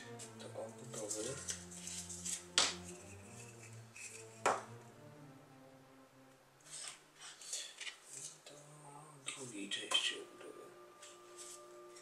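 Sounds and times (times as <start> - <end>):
faint background music: 0.0 - 12.0.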